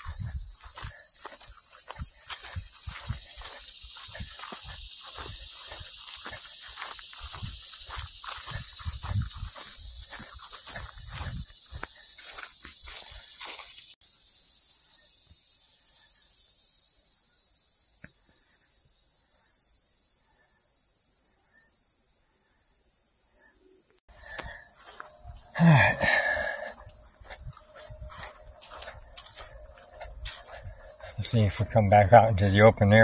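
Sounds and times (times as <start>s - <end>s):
footsteps on grassy trail: 0.0s - 14.0s, 24.1s - 32.9s
insects droning: 0.0s - 33.0s.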